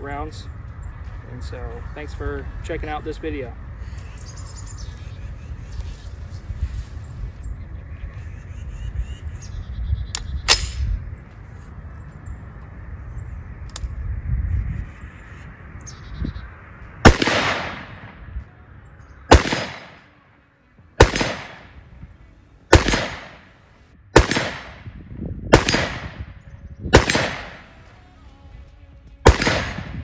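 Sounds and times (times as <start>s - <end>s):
rifle shots echoing: 17.0s - 18.3s, 19.3s - 20.2s, 21.0s - 22.0s, 22.7s - 27.9s, 29.2s - 30.0s.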